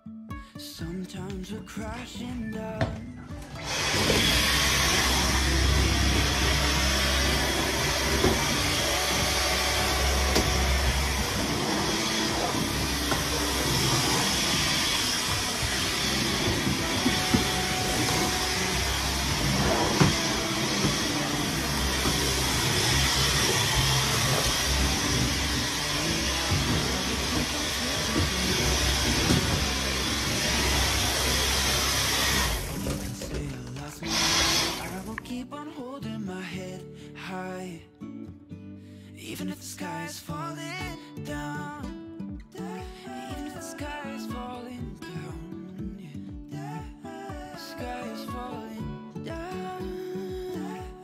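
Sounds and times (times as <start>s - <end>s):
stick vacuum running: 3.4s - 35.2s.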